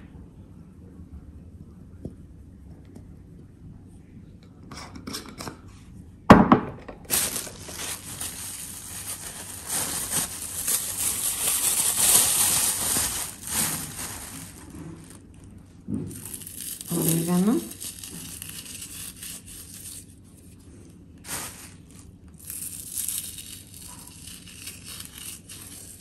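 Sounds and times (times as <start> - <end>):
pepper mill grinding: 7.1 - 15.2, 16.1 - 20.5, 21.3 - 26.0.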